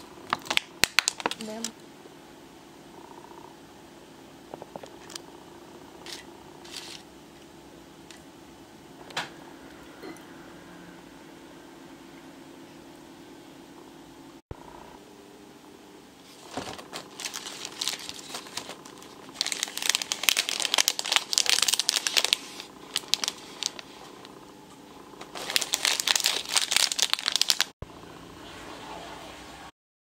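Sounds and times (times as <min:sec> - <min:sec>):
plastic wrappers crinkling: 0:00.2 - 0:01.7, 0:06.1 - 0:07.0, 0:16.3 - 0:24.2, 0:25.2 - 0:27.8.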